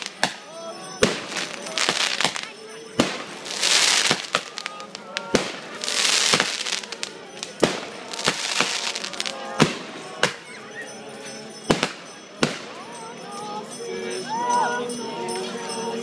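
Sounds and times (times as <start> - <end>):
fireworks bangs: 0.0 - 10.4, 11.7 - 12.7.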